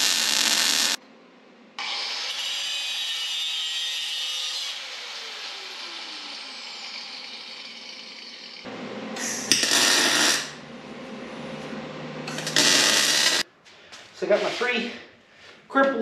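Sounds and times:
angle grinder cutting steel: 0:00.0 - 0:01.0, 0:01.8 - 0:08.7, 0:09.3 - 0:10.6, 0:12.3 - 0:13.4
grinder wheel spinning down: 0:00.0 - 0:01.0, 0:04.7 - 0:08.7, 0:09.4 - 0:10.6, 0:12.3 - 0:13.4
harsh burst of noise: 0:12.4 - 0:13.4.

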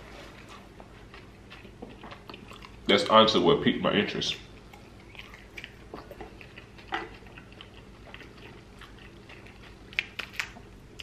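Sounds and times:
person chewing: 0:00.4 - 0:02.9, 0:04.3 - 0:11.0.

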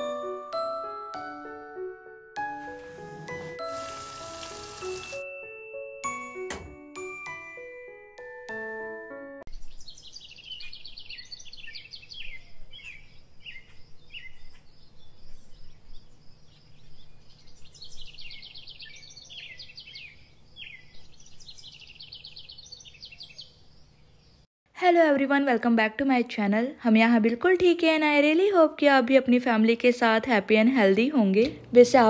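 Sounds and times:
bell-like music notes: 0:03.4 - 0:09.4
songbirds chirping and trilling: 0:09.5 - 0:24.5.

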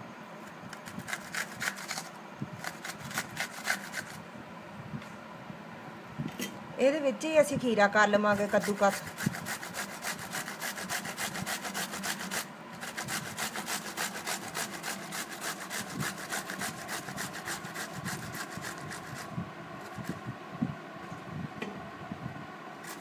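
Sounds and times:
cucumber rasping on a grater: 0:00.7 - 0:04.2, 0:08.3 - 0:20.2.

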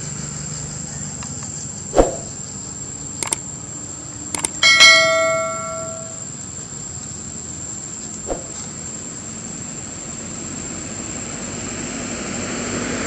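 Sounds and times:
mouse clicks: 0:03.2 - 0:03.4
high-pitched whine: 0:04.4 - 0:06.3.

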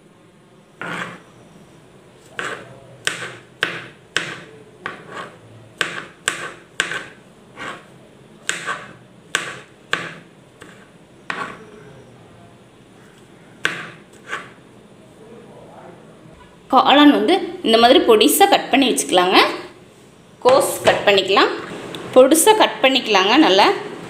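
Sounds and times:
knife chopping on plastic board: 0:00.8 - 0:01.2, 0:02.2 - 0:11.6, 0:13.6 - 0:14.6.

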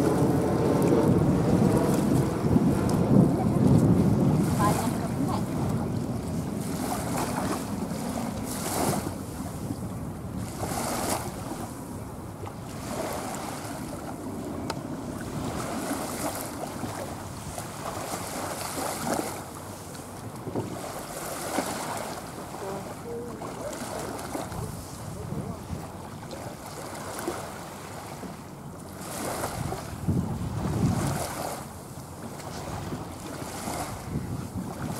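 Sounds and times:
wind buffeting microphone: 0:00.0 - 0:34.9.

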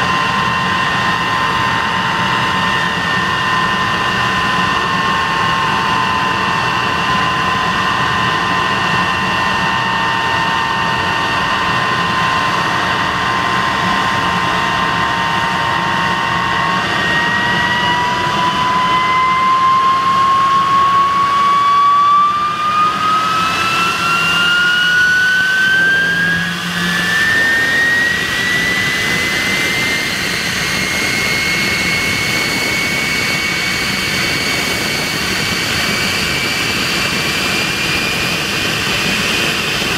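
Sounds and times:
jet engine whine and roar: 0:00.0 - 0:39.9.

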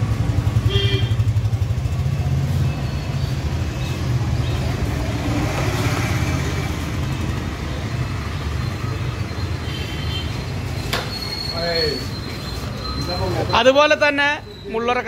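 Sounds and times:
vehicle engine rumbling: 0:00.0 - 0:15.0.

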